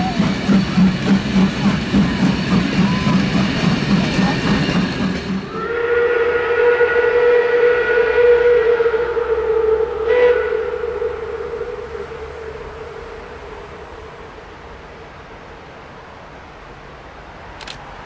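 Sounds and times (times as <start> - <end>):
steam whistle blast: 0.0 - 3.5, 5.3 - 14.3
train coaches rolling past: 0.0 - 18.0.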